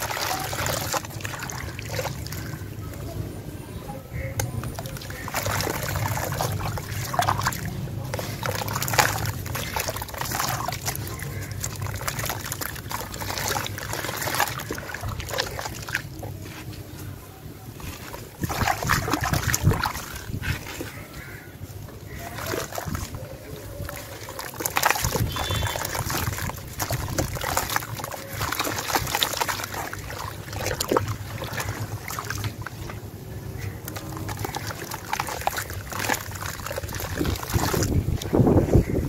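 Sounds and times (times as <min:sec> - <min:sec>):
hands splashing in water: 0:00.0 - 0:02.8, 0:04.4 - 0:16.9, 0:17.7 - 0:21.4, 0:22.0 - 0:38.8
wet sand crumbling: 0:04.4 - 0:33.0.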